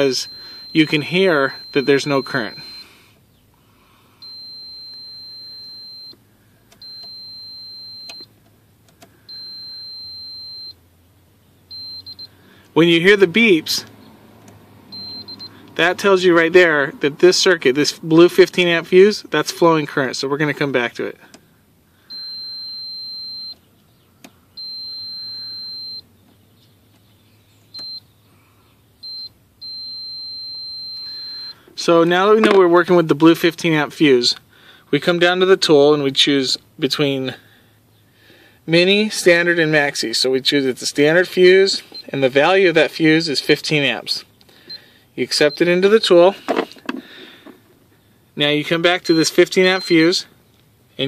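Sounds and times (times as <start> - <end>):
steady high-pitched beeps: 0.0 - 3.0, 4.2 - 6.2, 6.8 - 8.4, 9.2 - 10.8, 11.7 - 12.4, 14.9 - 15.6, 22.1 - 23.6, 24.6 - 26.1, 29.0 - 31.6, 48.8 - 50.2.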